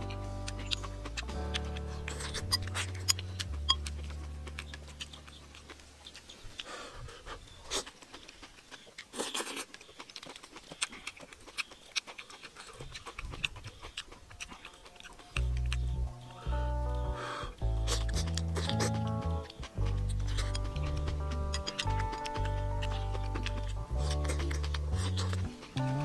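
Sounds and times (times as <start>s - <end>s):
background music: 0.0s - 5.8s, 15.4s - 26.0s
person chewing: 0.0s - 26.0s.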